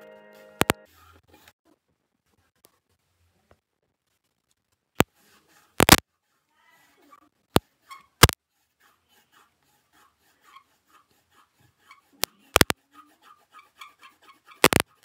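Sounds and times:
sharp clicks: 5.8 - 6.0, 12.6 - 12.8, 14.6 - 15.0
pencil scratching on paper: 7.8 - 15.0.

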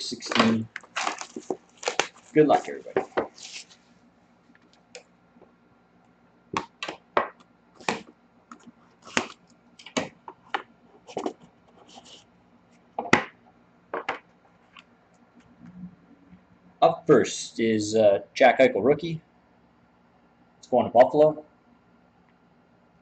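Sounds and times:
cardboard rustling: 0.1 - 3.8, 7.8 - 12.2.

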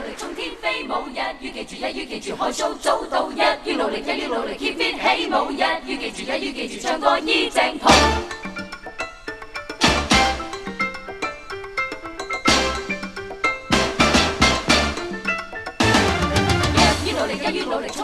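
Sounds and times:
vocal group singing a cappella: 0.0 - 8.5, 16.6 - 18.0.

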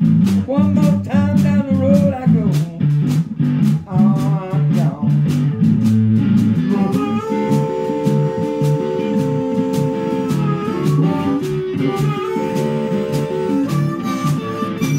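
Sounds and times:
bass line: 0.0 - 14.9
bending lead guitar melody: 0.0 - 14.9
drum kit: 0.0 - 14.9
guitar: 0.0 - 14.9.

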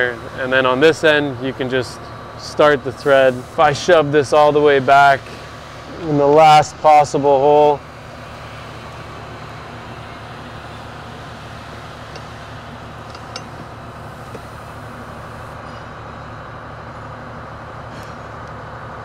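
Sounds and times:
mechanical hum and hiss: 0.0 - 19.0.

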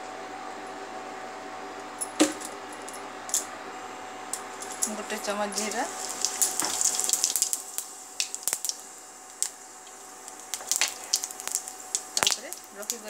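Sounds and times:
seeds crackling in hot oil: 4.4 - 13.0.

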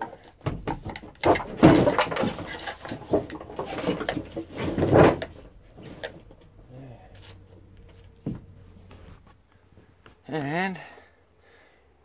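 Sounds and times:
fiberglass panel knocking and scraping: 0.0 - 6.5, 7.9 - 9.2.

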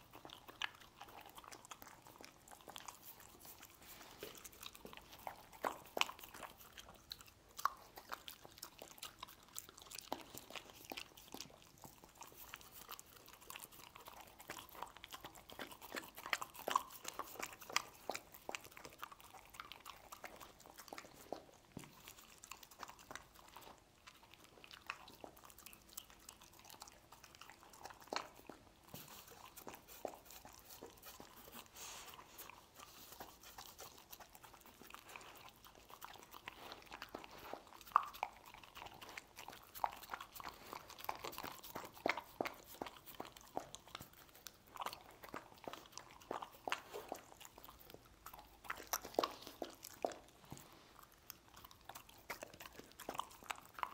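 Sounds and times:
dog chewing and crunching: 0.0 - 53.9.

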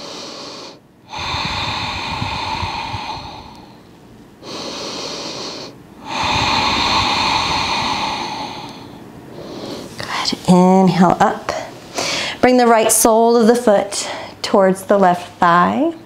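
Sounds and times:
woman breathing deeply: 0.0 - 10.1, 11.9 - 12.4, 14.0 - 14.4.

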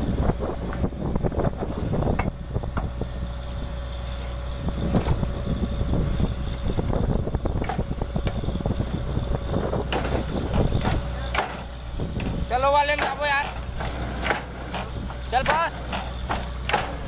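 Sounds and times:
constant whine: 0.0 - 17.0
drilling rig engine drone: 0.0 - 17.0
sharp metallic drilling knocks: 9.8 - 17.0.

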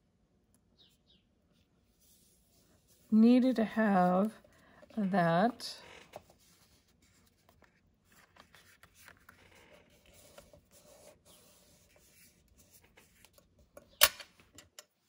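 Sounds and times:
paper rustling and rubbing: 5.8 - 13.6.

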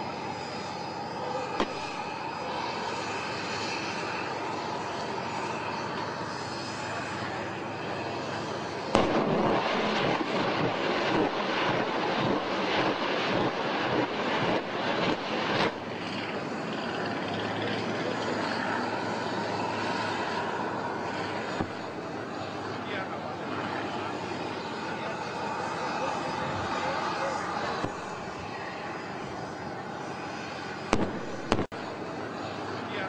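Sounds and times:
steady low drone: 0.0 - 33.0
rapid rocket launches: 7.2 - 17.1, 30.6 - 31.8
rocket launcher blast: 8.9 - 15.8, 30.9 - 31.8.

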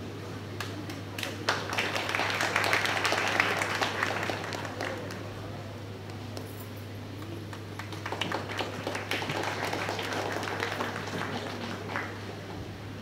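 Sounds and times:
steady low hum: 0.0 - 13.0
audience applause: 1.2 - 5.3, 7.5 - 12.4.

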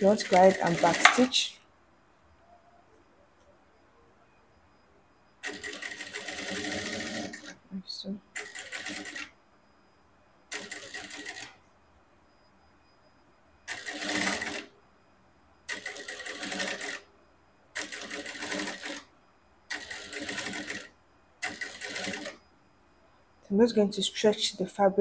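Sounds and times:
sewing machine stitching: 0.0 - 1.3, 5.4 - 7.6, 8.4 - 9.3, 10.5 - 11.6, 13.7 - 14.7, 15.7 - 17.0, 17.8 - 19.1, 19.7 - 22.4.

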